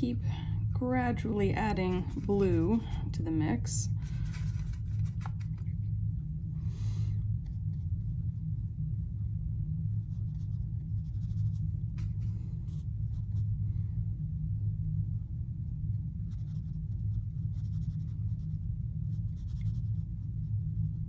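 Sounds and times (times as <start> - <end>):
steady low hum: 0.0 - 21.0
brush scratching and tapping: 1.2 - 3.2, 3.8 - 5.7, 16.2 - 21.0.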